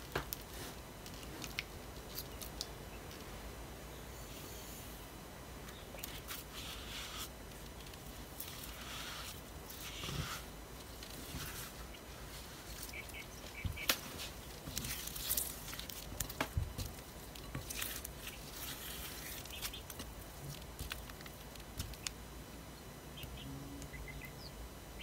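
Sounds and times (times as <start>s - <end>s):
spatula stirring and scraping mixture: 8.4s - 12.9s.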